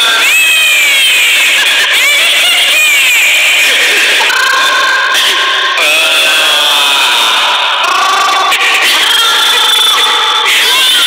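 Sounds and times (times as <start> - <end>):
young child crying: 0.0 - 6.8.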